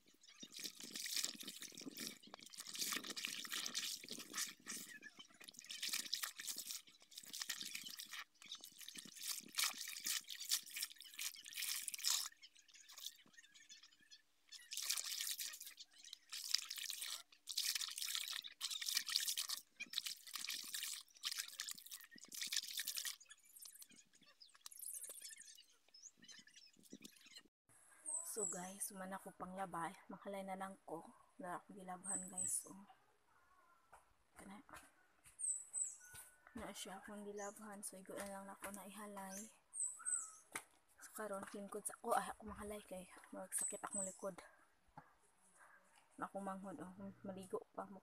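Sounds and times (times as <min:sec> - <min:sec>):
clothes scrubbing in soapy water: 0:00.4 - 0:13.2, 0:14.5 - 0:25.2.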